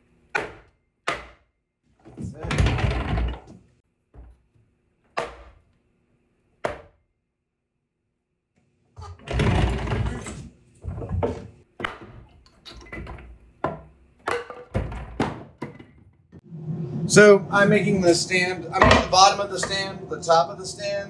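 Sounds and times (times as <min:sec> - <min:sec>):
wooden parts clattering: 0:10.9 - 0:16.2.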